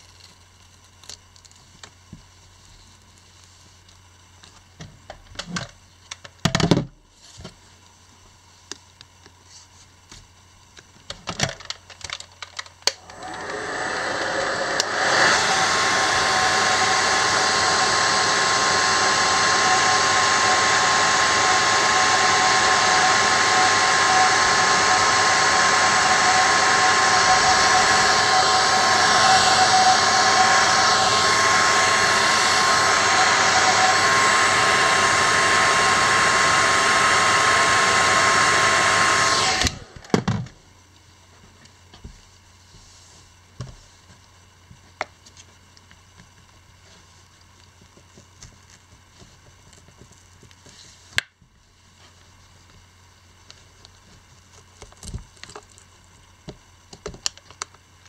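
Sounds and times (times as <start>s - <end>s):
hair dryer running: 12.8s - 40.5s.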